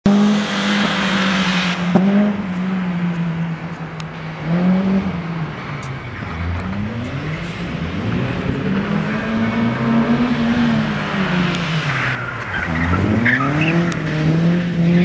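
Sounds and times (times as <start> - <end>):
car engine revving hard: 0.1 - 3.1, 6.7 - 15.0
tyre squeal: 11.8 - 14.1.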